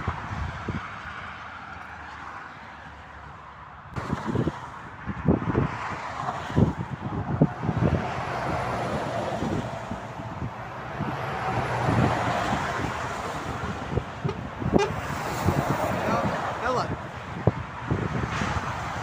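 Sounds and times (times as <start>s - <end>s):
highway traffic passing: 0.0s - 19.0s
vehicle horn: 14.2s - 15.2s.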